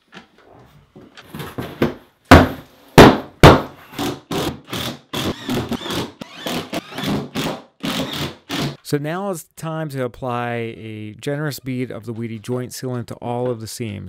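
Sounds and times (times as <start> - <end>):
impact driver driving screws: 3.9 - 8.8.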